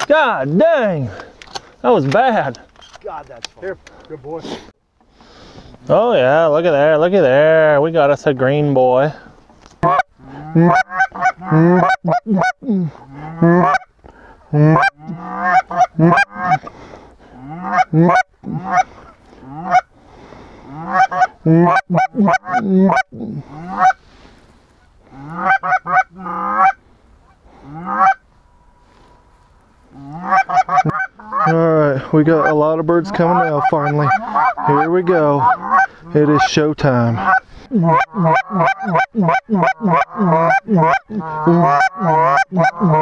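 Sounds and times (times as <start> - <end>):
goose calls honking and clucking: 9.8 - 13.9, 14.5 - 16.7, 17.3 - 19.9, 20.7 - 24.0, 24.8 - 29.3, 29.9 - 43.0.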